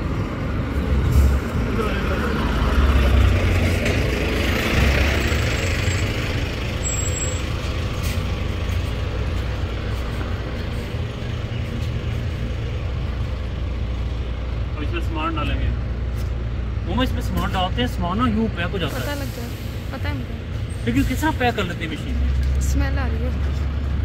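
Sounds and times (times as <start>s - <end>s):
heavy truck passing: 0.0s - 24.0s.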